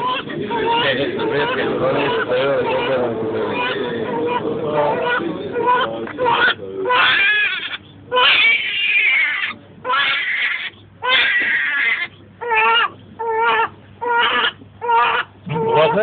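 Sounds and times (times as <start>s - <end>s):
baby crying: 0.0s - 16.0s.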